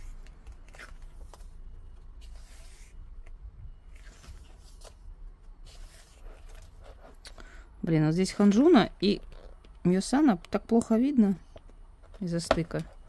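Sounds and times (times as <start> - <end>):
book pages turning: 0.0 - 7.0.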